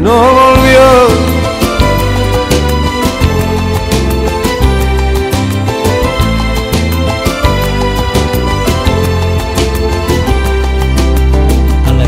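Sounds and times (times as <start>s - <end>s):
instrumental music with bass and beat: 0.0s - 12.0s.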